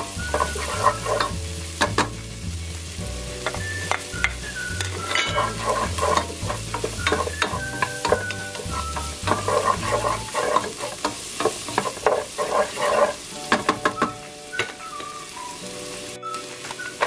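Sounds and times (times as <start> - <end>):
wooden spoon scraping pan: 0.0 - 2.1, 3.4 - 13.3
onion sizzling in hot oil: 0.0 - 17.0.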